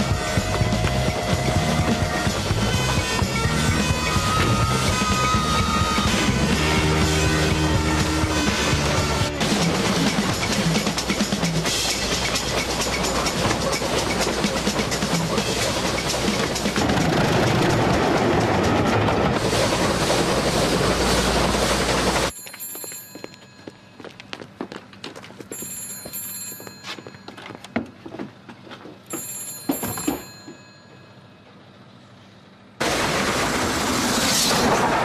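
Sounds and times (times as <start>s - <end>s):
steam train passing: 0.0s - 23.3s, 31.6s - 35.0s
bell telephone ringing: 22.3s - 24.1s, 25.5s - 27.6s, 29.1s - 31.4s
footsteps: 22.4s - 30.7s.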